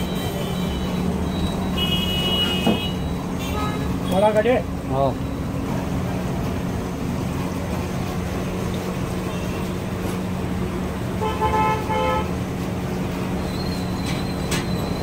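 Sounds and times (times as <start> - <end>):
vehicle horn honking: 1.8 - 4.2, 11.2 - 12.3.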